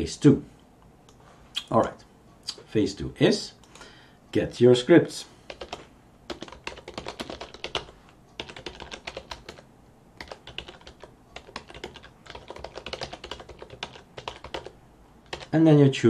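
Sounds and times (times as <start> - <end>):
typing on computer keyboard: 5.5 - 9.6, 10.2 - 15.5.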